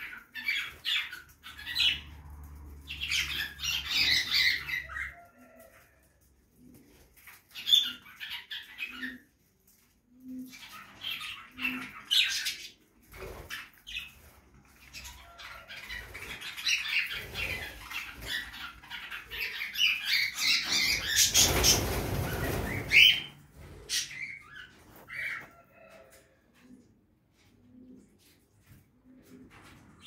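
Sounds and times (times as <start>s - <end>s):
budgerigars chirping and chattering: 0.0s - 2.1s, 2.9s - 5.2s, 10.6s - 12.8s, 14.9s - 23.3s
wings flapping: 20.4s - 25.1s.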